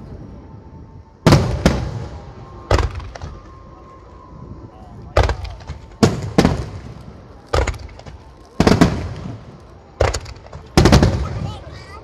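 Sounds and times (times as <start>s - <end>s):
fireworks booming: 1.2s - 3.8s, 5.0s - 12.0s.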